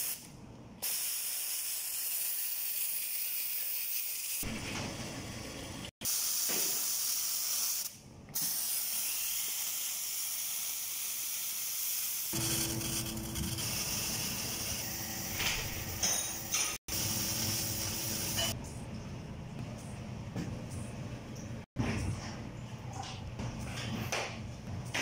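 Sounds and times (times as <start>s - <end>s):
steam wand hissing: 6.1s - 15.8s
espresso machine humming: 12.4s - 16.0s.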